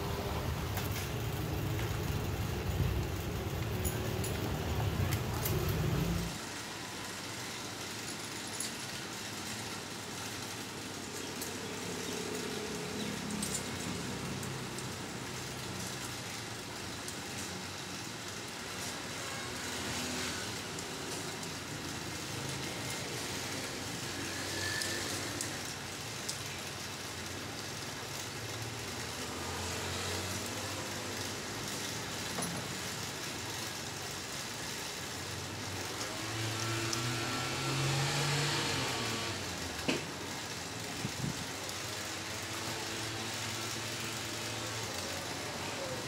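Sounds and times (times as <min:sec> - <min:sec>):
saw chain clicks: 0:03.4 - 0:06.4, 0:07.4 - 0:16.2.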